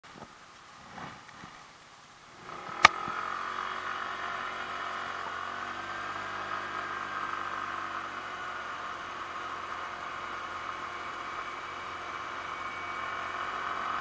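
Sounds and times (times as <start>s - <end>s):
scooter engine pulling away: 2.3s - 14.0s
sharp click: 2.8s - 3.0s.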